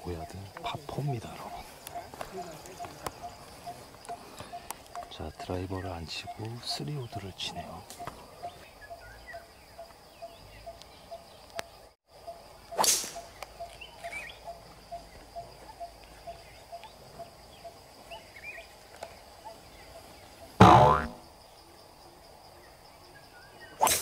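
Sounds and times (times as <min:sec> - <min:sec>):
small bird chirps: 0:00.1 - 0:18.7
golf club striking ball: 0:20.6 - 0:21.2.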